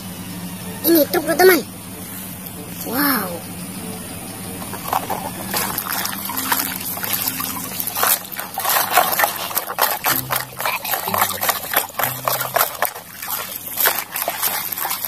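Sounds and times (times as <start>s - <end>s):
water splashing in a bucket: 4.6s - 15.0s.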